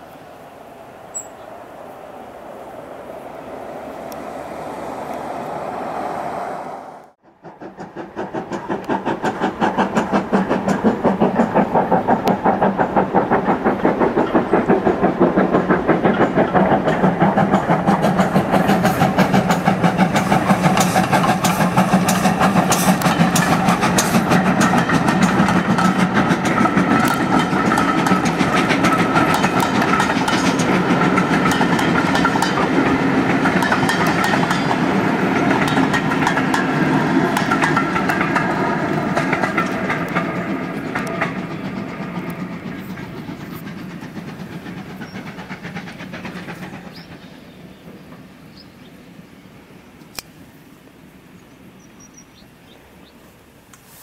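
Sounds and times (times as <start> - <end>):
steam locomotive exhaust beats: 0.8 - 50.4
train wheels clattering on rail joints: 7.2 - 48.9.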